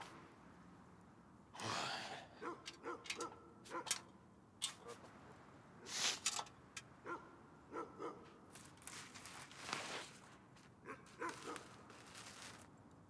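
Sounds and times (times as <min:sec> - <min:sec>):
dog barking faintly: 0:07.0 - 0:08.4, 0:10.8 - 0:11.8
soft rustling: 0:08.5 - 0:12.8.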